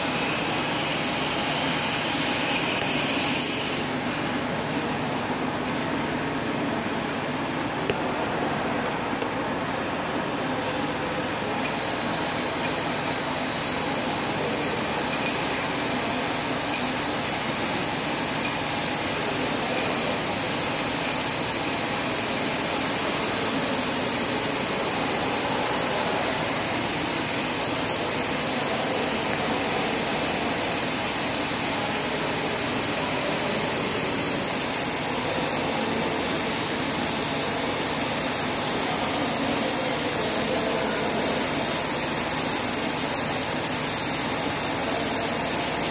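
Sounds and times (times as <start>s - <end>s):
welding arc hissing: 0.0s - 5.5s, 10.0s - 45.9s.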